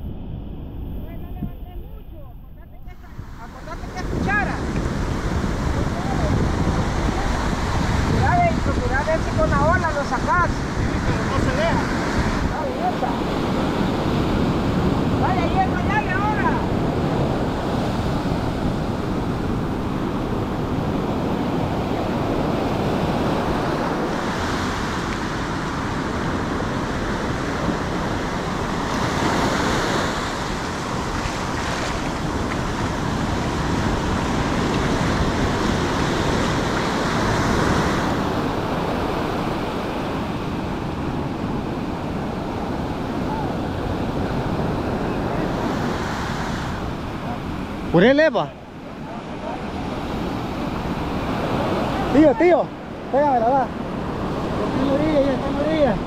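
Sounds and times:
ocean surf breaking on beach: 0:02.8 - 0:56.0.

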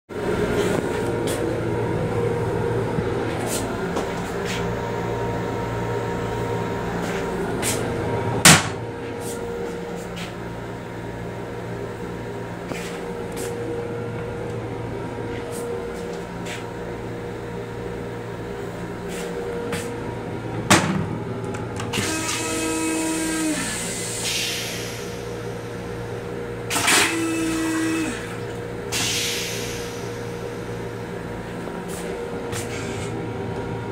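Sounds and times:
electric railcar hum and rumble: 0:00.1 - 0:33.9.

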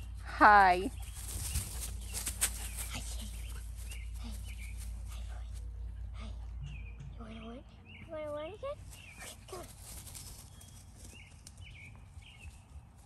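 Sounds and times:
low outdoor rumble: 0:00.0 - 0:13.0
rustling: 0:00.9 - 0:05.6, 0:08.8 - 0:11.8.

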